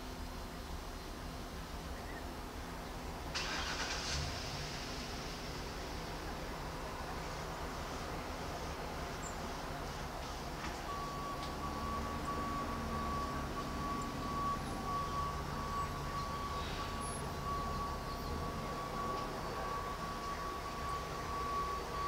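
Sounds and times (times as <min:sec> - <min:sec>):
distant engines rumbling: 0:00.0 - 0:22.0
thin steady whine: 0:00.0 - 0:22.0.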